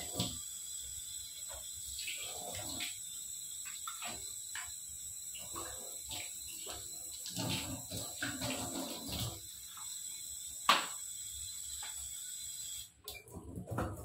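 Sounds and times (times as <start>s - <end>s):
tap water splashing into sink: 0.0s - 0.4s, 3.6s - 4.8s, 5.4s - 9.9s, 10.6s - 11.0s.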